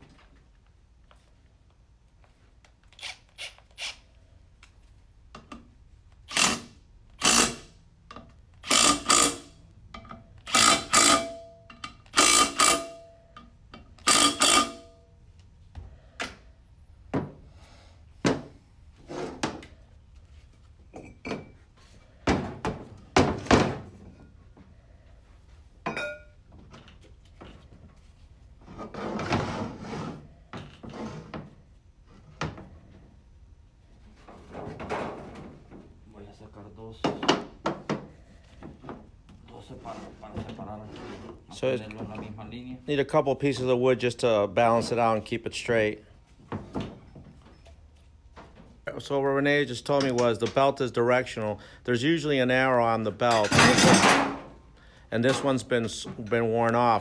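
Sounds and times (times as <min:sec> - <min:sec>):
metal parts clanking: 0:53.3 - 0:54.4.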